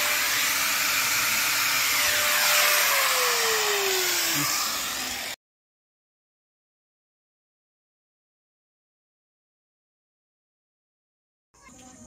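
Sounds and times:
motor hum sliding lower: 0.0s - 5.4s
power tool motor hissing: 0.0s - 5.4s.

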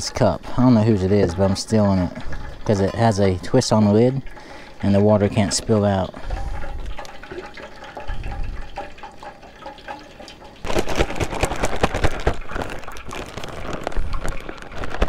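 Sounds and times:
water pouring into plastic bag: 0.0s - 15.0s
wet batter sloshing: 0.4s - 15.0s
plastic bag crinkling: 10.6s - 15.0s.

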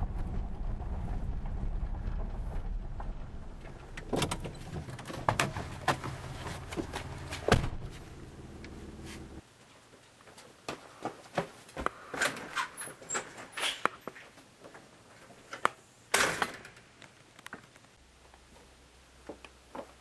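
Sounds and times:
low engine rumble: 0.0s - 9.4s.

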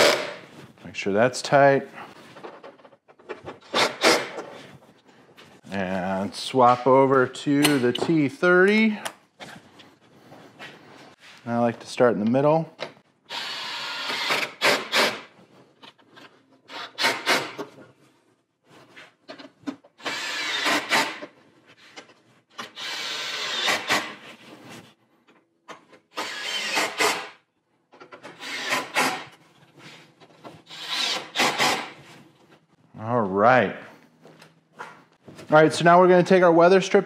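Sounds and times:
cordless drill whirring: 13.3s - 15.1s, 20.0s - 21.0s, 22.7s - 24.0s, 26.2s - 27.2s, 28.4s - 29.2s, 30.7s - 31.8s.

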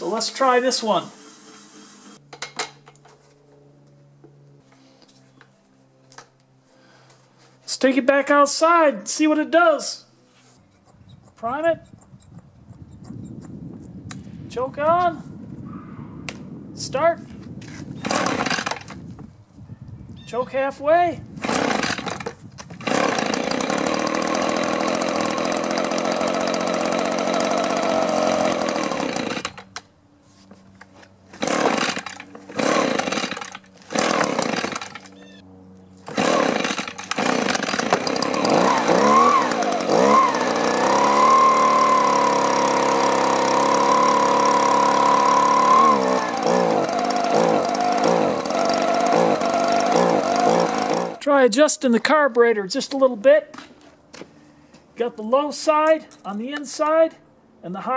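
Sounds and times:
starter cord pulls: 18.0s - 19.0s, 21.4s - 29.8s, 31.4s - 35.2s, 36.1s - 51.2s
leaf blower engine: 18.0s - 19.1s, 21.3s - 29.8s, 30.5s - 51.4s.

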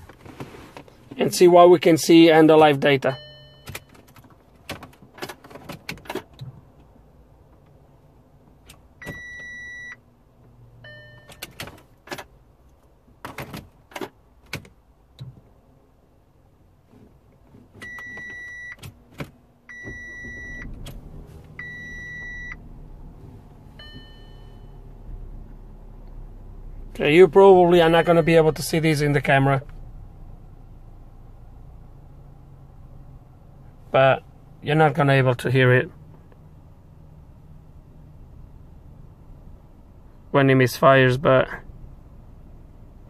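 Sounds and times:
car engine starting and idling: 0.0s - 43.0s.

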